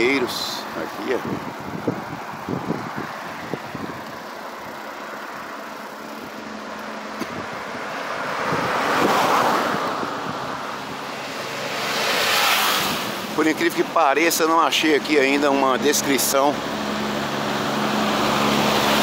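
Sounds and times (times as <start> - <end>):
road traffic rushing: 0.0 - 19.0
van passing: 0.0 - 19.0
motorcycle passing: 1.2 - 13.4.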